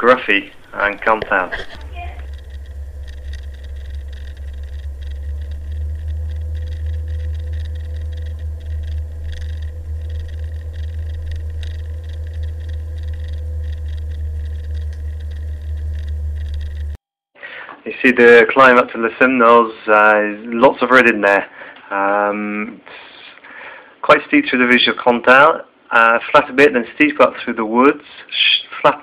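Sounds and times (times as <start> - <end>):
faint steady hum: 0.0 - 17.7.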